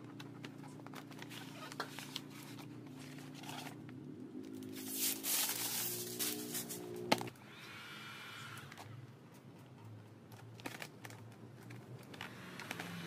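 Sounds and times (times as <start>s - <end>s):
plastic film crinkling: 4.6s - 6.9s.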